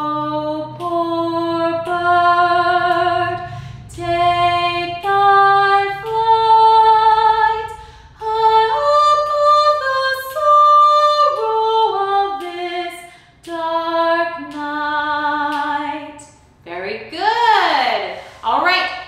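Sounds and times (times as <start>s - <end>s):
woman singing unaccompanied: 0.0s - 16.3s
singer breathing: 3.4s - 3.9s, 7.7s - 8.2s, 13.0s - 13.4s, 18.1s - 18.5s.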